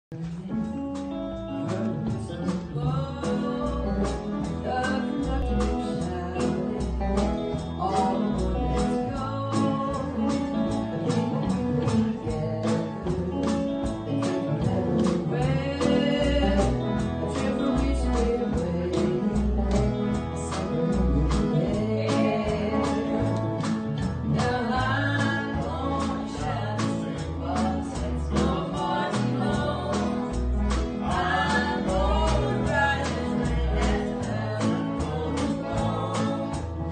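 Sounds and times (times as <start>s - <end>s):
bass guitar: 0.0s - 36.9s
electric guitar: 0.1s - 36.9s
person singing: 0.2s - 36.9s.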